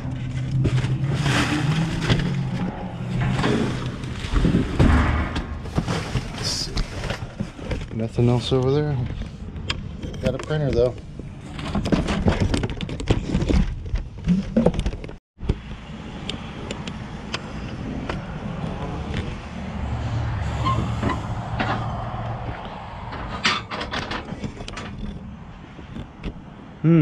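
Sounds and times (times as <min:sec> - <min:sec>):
objects knocking and rattling: 0:00.0 - 0:08.0, 0:09.0 - 0:15.6, 0:20.8 - 0:26.5
low engine rumble: 0:15.6 - 0:27.0.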